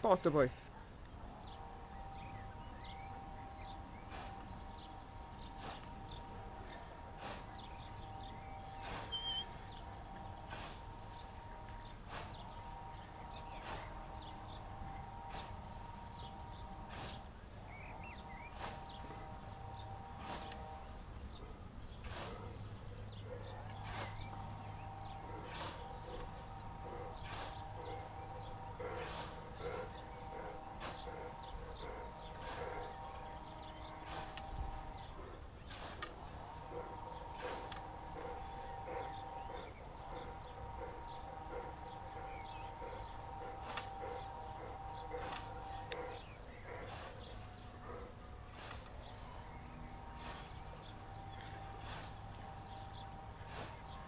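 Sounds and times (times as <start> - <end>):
faint birds chirping: 0.0 - 54.0
scythe swishing through grass: 2.1 - 40.4, 41.2 - 54.0.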